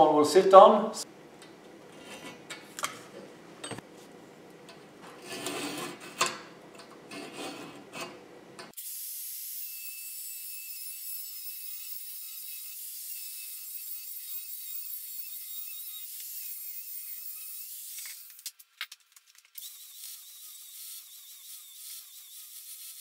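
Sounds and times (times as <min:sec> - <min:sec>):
tools scraping and clicking: 0:01.9 - 0:03.8, 0:04.7 - 0:08.7
angle grinder cutting steel: 0:19.6 - 0:23.0.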